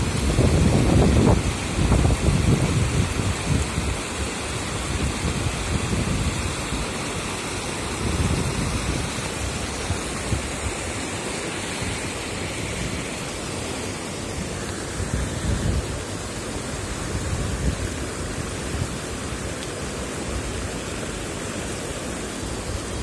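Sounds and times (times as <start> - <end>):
wind buffeting microphone: 0.0 - 7.1, 7.9 - 10.8, 14.8 - 19.4
floodwater rushing over weir: 0.0 - 23.0.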